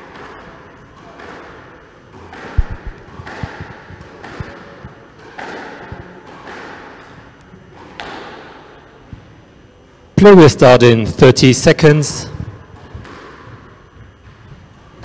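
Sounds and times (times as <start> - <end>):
squash ball thudding: 0.0 - 9.2, 12.4 - 15.0.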